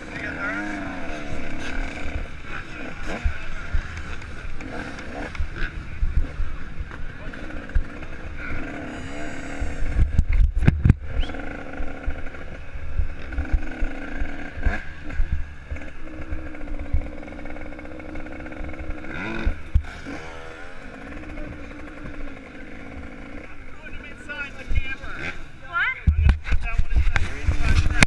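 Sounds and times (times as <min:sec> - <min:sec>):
dirt bike engine: 0:00.0 - 0:28.0
wind thumping on microphone: 0:09.5 - 0:13.8, 0:26.0 - 0:28.0.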